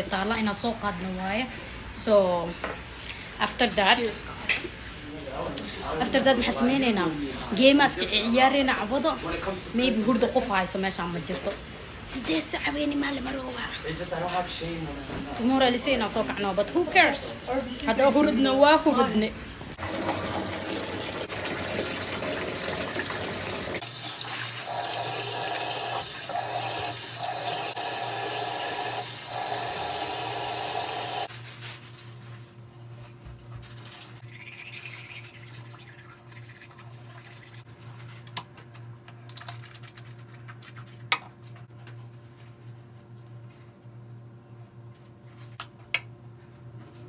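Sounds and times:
water running: 0:19.8 - 0:31.3, 0:34.2 - 0:37.7.

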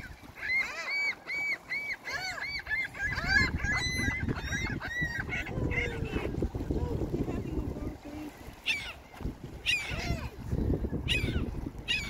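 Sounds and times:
gulls calling: 0:00.0 - 0:12.0.

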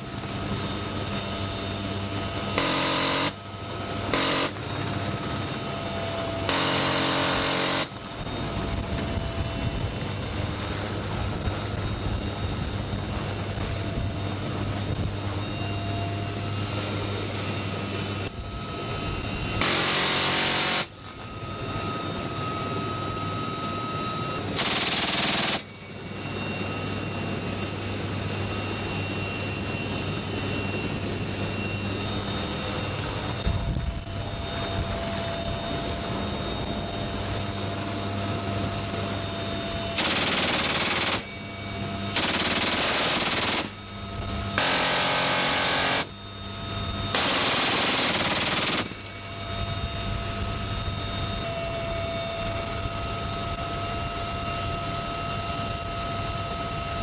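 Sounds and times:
helicopter engine and rotor: 0:00.0 - 0:57.0
machine gun bursts: 0:24.6 - 0:25.7, 0:40.0 - 0:41.3, 0:42.2 - 0:43.8, 0:44.6 - 0:46.1, 0:47.2 - 0:49.1.

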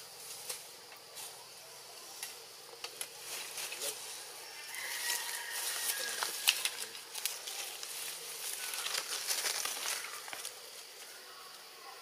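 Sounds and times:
twigs and leaves rustling: 0:00.0 - 0:11.7
high forest hiss: 0:00.0 - 0:12.0.

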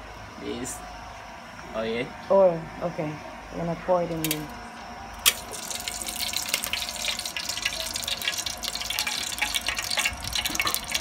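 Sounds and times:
oil pouring and splashing: 0:05.2 - 0:11.0.

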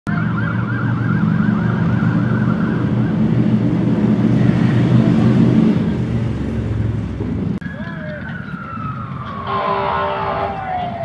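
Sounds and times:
siren yelping: 0:00.1 - 0:03.6, 0:07.6 - 0:11.0.

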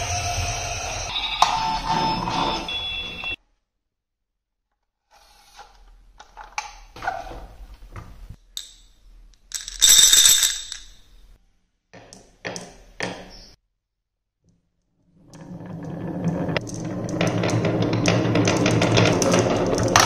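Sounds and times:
marbles dropping into wooden cups: 0:08.6 - 0:11.1, 0:16.3 - 0:20.0
glass marbles clinking in a glass: 0:09.5 - 0:11.1.

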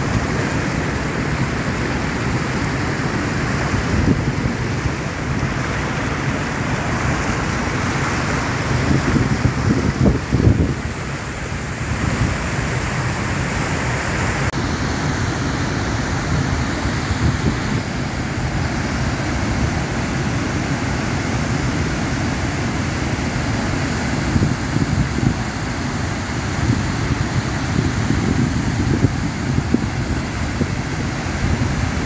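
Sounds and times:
churning rapids: 0:00.0 - 0:32.0
waterfall rushing: 0:00.0 - 0:32.0
wind buffeting microphone: 0:08.4 - 0:11.1, 0:26.4 - 0:32.0.

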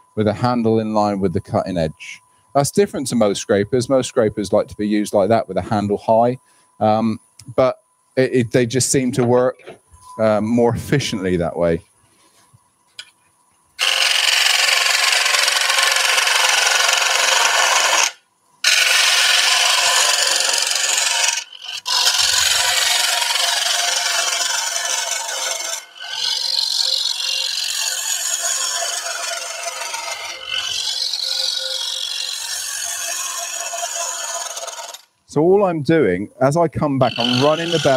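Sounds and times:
lathe tool cutting wood: 0:13.8 - 0:35.1, 0:37.0 - 0:37.9.

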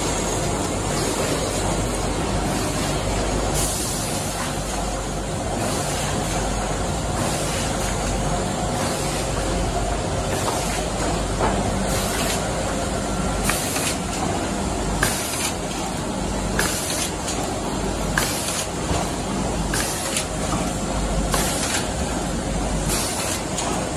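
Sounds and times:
machine hiss and click: 0:02.4 - 0:04.9, 0:10.2 - 0:12.7, 0:13.3 - 0:22.2, 0:22.8 - 0:23.9.

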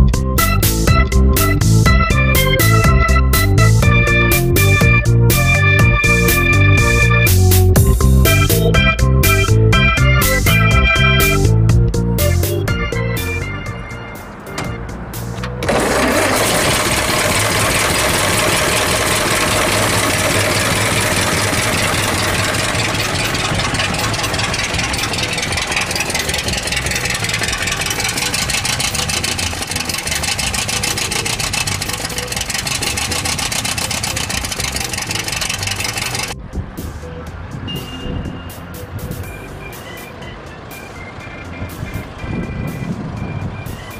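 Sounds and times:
car engine idling: 0:10.2 - 0:37.6.

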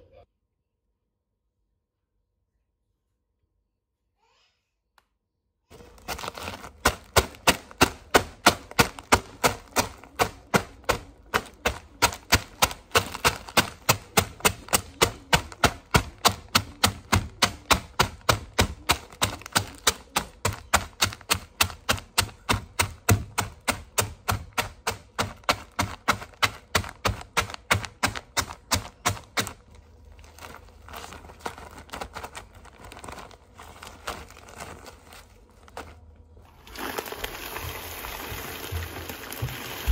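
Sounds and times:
plastic bag rustling: 0:05.7 - 0:39.9
bag pounded on benchtop: 0:05.8 - 0:29.7.

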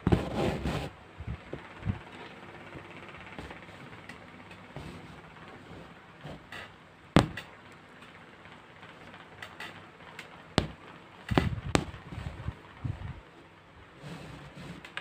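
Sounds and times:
handling knocks and thumps: 0:00.0 - 0:01.6, 0:06.3 - 0:07.6, 0:10.6 - 0:12.6.

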